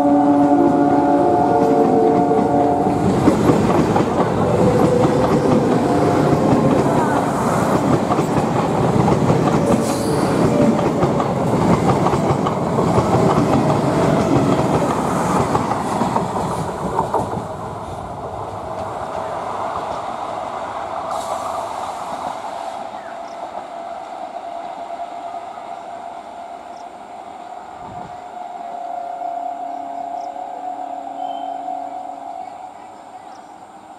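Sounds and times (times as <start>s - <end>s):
distant train whine: 0.0s - 33.9s
train wheels clattering over rails: 1.5s - 20.3s.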